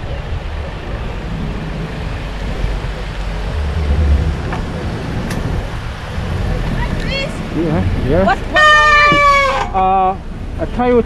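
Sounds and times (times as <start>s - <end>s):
wind buffeting microphone: 0.0s - 9.5s
road traffic rumble: 0.0s - 11.0s.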